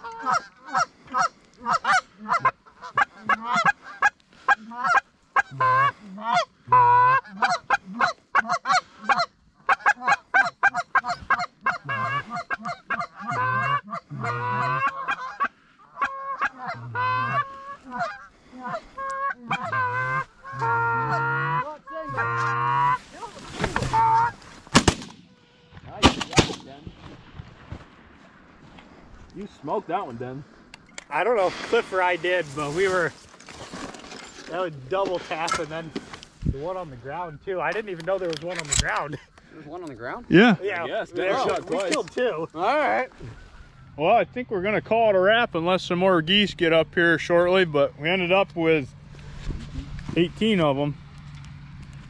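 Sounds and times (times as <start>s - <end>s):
geese honking: 0.0s - 24.6s.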